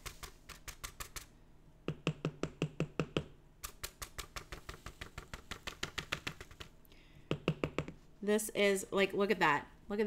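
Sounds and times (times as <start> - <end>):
rapid tapping on card: 0.0 - 1.3, 1.9 - 8.0.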